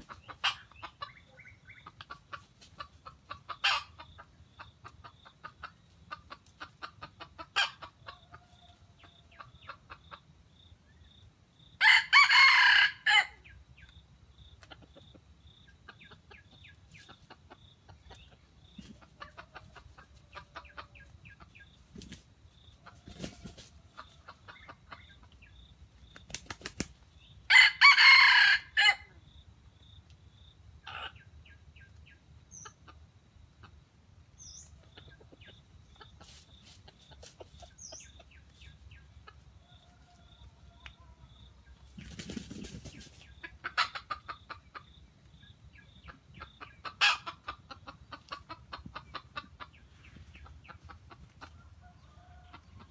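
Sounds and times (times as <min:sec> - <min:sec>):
faint chicken clucking: 0:00.0 - 0:52.9
rooster crowing: 0:11.8 - 0:13.4, 0:27.5 - 0:29.1.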